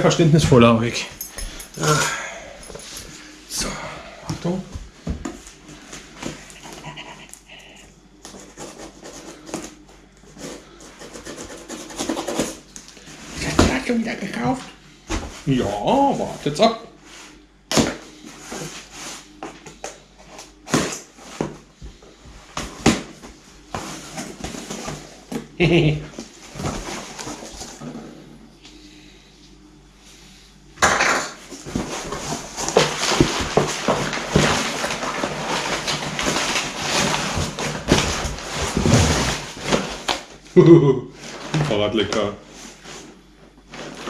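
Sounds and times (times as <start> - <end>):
cardboard scraping and rustling: 22.5 - 25.3, 26.2 - 27.9, 31.6 - 40.2.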